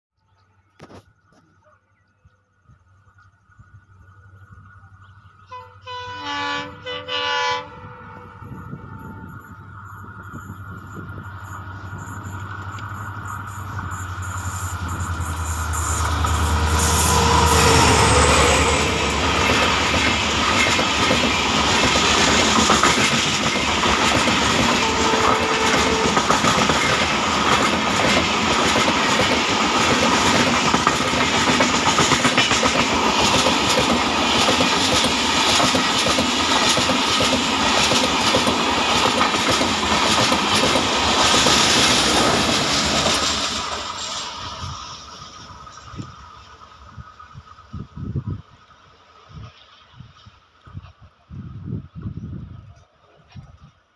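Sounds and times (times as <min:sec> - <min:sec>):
diesel locomotive engine rumbling: 0:02.4 - 0:53.9
train wheels clacking on rail joints: 0:10.3 - 0:46.2.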